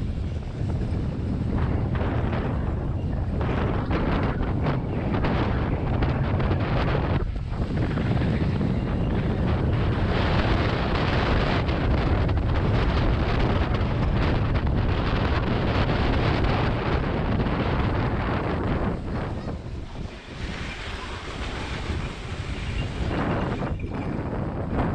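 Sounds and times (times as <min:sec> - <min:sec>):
wind buffeting microphone: 0:00.0 - 0:24.9
toboggan runners scraping snow: 0:18.9 - 0:23.8.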